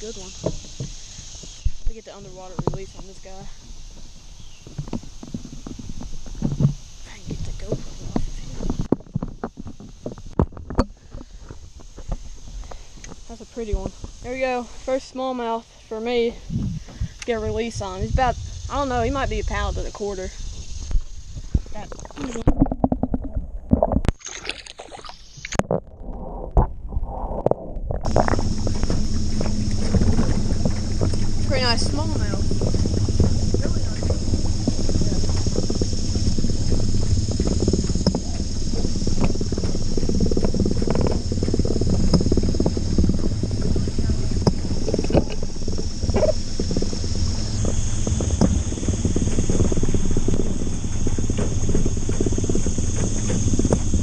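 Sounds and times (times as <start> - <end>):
high-pitched insect drone: 0.0 - 22.6, 28.1 - 54.0
open-air hiss: 0.0 - 22.8, 28.1 - 54.0
low rumble with crackle: 0.0 - 54.0
knocks underwater: 0.1 - 14.2, 20.9 - 54.0
water gurgling underwater: 16.4 - 54.0.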